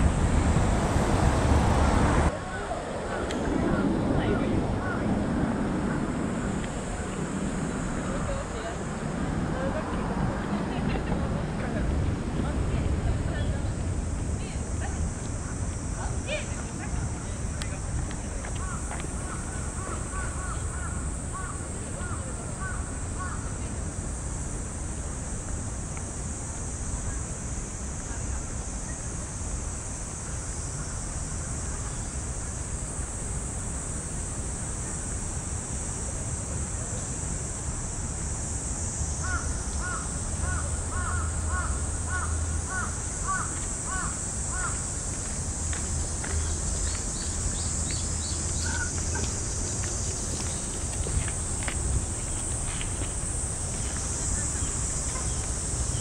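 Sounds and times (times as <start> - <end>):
cicadas droning: 0.0 - 56.0
crow cawing: 18.6 - 23.5, 39.2 - 44.8.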